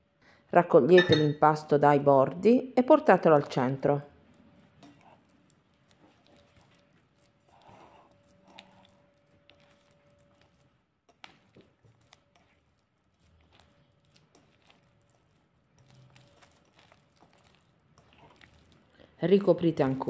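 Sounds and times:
sticky dough folding: 4.1 - 20.0.

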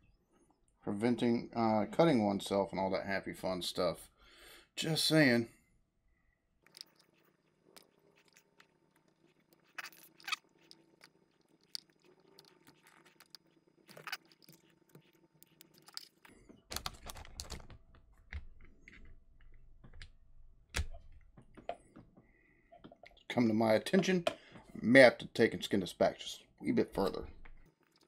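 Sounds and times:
electrical cable crackling and clicking: 6.6 - 24.7, 27.0 - 28.0.

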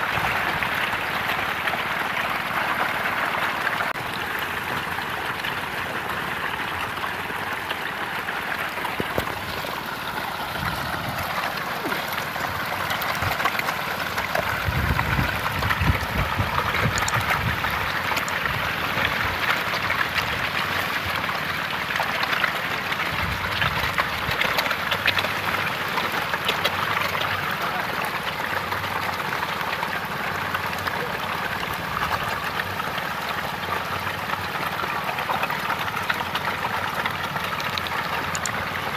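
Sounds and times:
fish splashing at water surface: 0.0 - 38.9
low rumbling bumps: 8.8 - 21.2.

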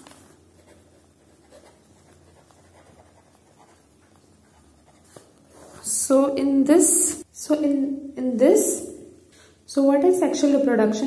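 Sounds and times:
pen scratching on paper: 0.5 - 5.9.

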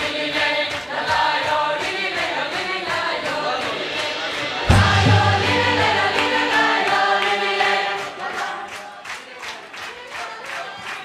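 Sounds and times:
light steady beat: 0.0 - 8.6
large choir singing folk song: 0.0 - 11.0
deep bass note: 3.8 - 7.3
folk orchestra playing: 4.1 - 8.0.

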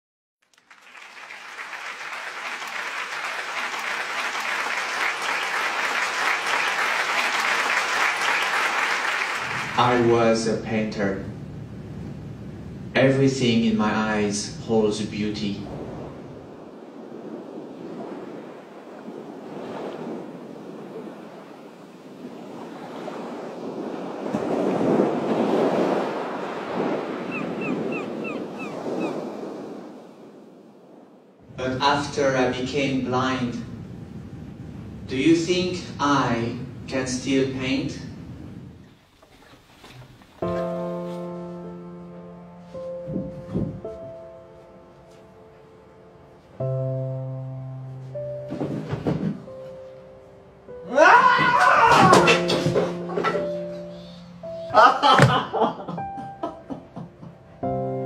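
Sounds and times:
audience applause: 0.4 - 9.9
ocean surf breaking: 0.9 - 57.8.

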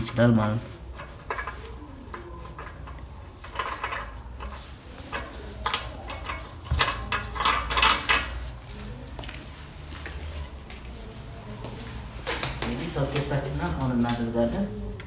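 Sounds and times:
metallic clicks and scrapes: 0.9 - 8.5.

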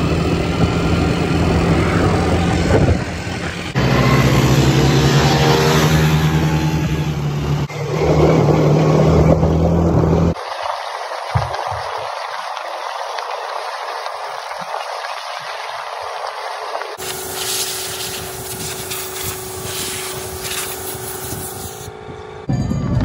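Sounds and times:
quad bike engines droning: 0.0 - 10.4, 16.4 - 23.0
rushing noise: 0.0 - 10.5.

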